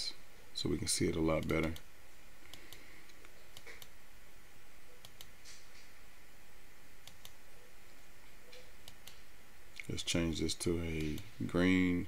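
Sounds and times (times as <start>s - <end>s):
low background hiss: 0.0s - 12.0s
computer mouse clicks: 1.3s - 4.0s, 5.0s - 5.9s, 7.0s - 7.4s, 8.5s - 9.9s.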